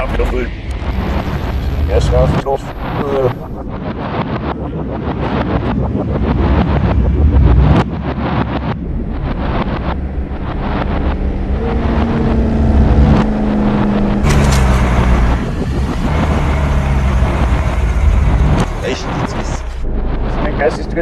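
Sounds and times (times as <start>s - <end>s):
traffic engines rumbling: 0.0s - 3.7s, 8.8s - 21.0s
droning film score: 0.0s - 21.0s.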